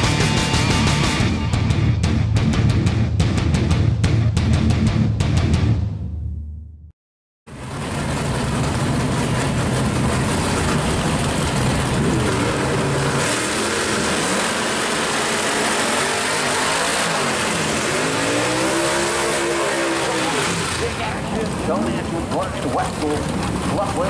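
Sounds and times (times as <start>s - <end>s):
car engine revving: 7.5s - 24.0s
tires spinning: 7.5s - 24.0s.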